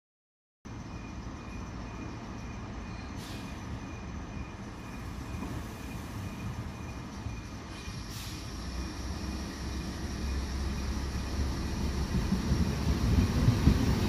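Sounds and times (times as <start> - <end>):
diesel railcar rumble: 0.7 - 14.0
short hiss: 7.7 - 8.6.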